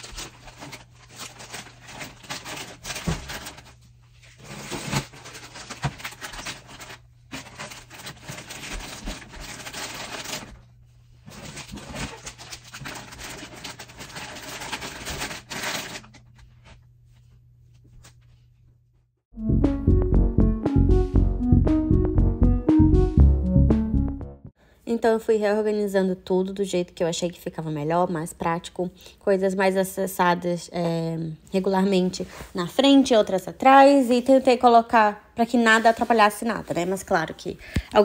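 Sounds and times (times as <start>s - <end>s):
plastic snack bags crinkling: 0.0s - 10.6s, 11.3s - 16.4s.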